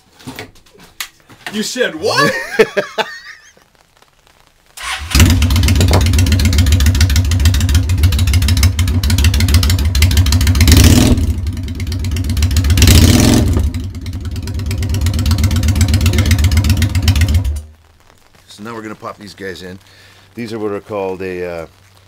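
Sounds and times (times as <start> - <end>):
loud motorcycle engine revving: 5.1 - 17.6.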